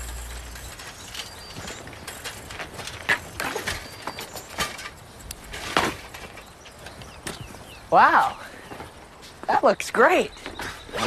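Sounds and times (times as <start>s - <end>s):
bike frames clicking and rattling: 0.0s - 7.6s.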